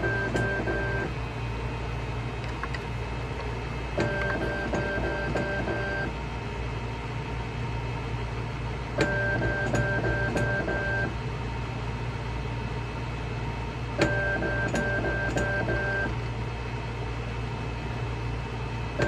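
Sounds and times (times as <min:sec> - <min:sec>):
machine low hum: 0:00.0 - 0:19.0
pulsed mechanical whirring: 0:04.0 - 0:06.1.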